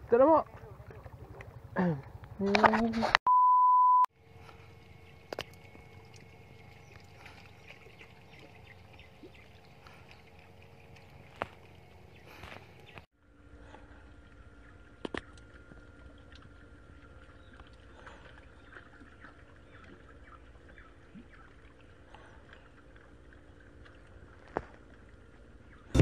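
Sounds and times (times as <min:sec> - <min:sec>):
light water sounds: 0:00.0 - 0:02.8, 0:04.2 - 0:26.0
low steady rumble: 0:04.2 - 0:26.0
small ticks: 0:04.4 - 0:07.4, 0:09.8 - 0:13.0.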